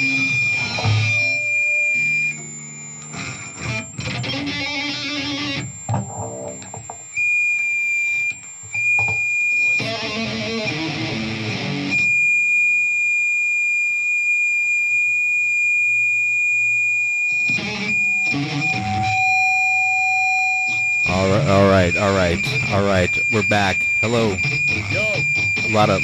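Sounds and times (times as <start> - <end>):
high-pitched audio feedback squeal: 0.0 - 6.7, 16.8 - 26.0
electric guitar chords: 0.0 - 6.9, 9.7 - 12.1, 17.4 - 26.0
lower feedback tone: 16.5 - 26.0.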